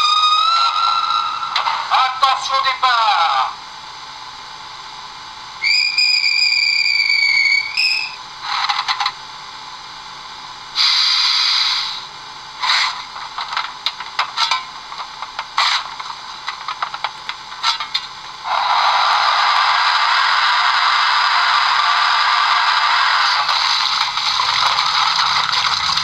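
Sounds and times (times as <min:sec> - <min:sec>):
brief steam hiss: 0:10.8 - 0:12.1.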